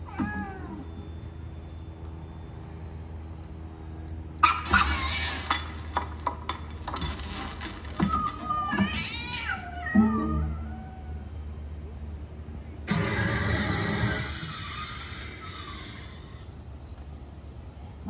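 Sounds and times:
low hum: 0:00.0 - 0:18.0
cat meowing: 0:00.1 - 0:00.9, 0:08.0 - 0:11.2.

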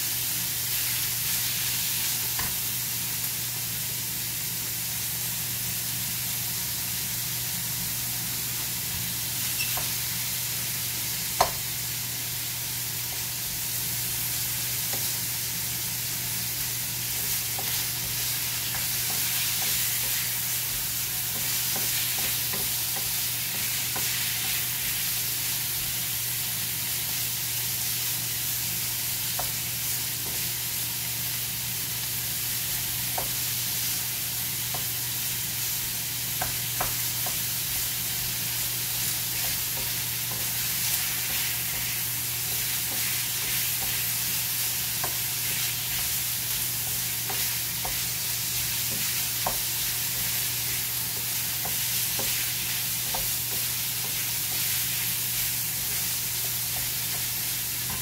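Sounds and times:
meat sizzling in a frying pan: 0:00.0 - 0:58.0
wooden spatula scraping a pan: 0:47.2 - 0:58.0.

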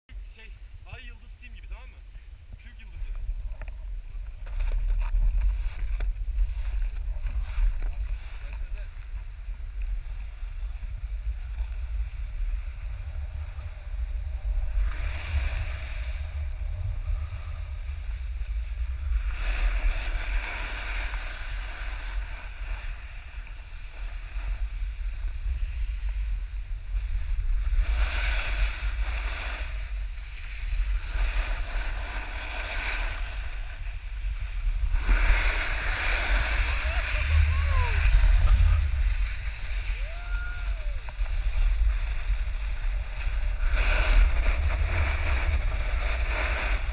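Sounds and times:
wind buffeting microphone: 0:02.1 - 0:46.9
snowboard scraping across snow: 0:02.7 - 0:46.9.

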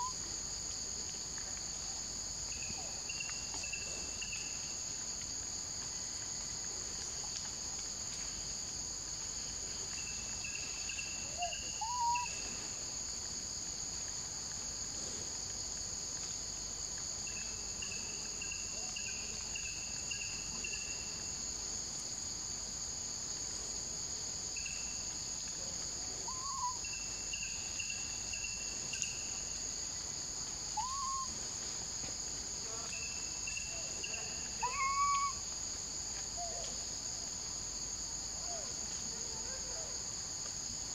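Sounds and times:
insects droning: 0:00.0 - 0:40.9
rising-then-falling calls: 0:11.4 - 0:12.3, 0:30.8 - 0:31.3, 0:34.6 - 0:35.4.

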